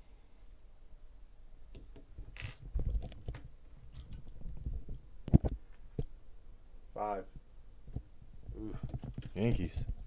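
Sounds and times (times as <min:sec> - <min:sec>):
handling rumbling and rustling: 0:02.0 - 0:05.6.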